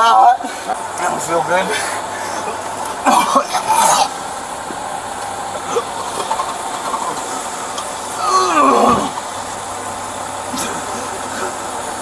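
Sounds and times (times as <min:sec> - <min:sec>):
man coughing: 0:01.7 - 0:04.2, 0:10.5 - 0:11.6.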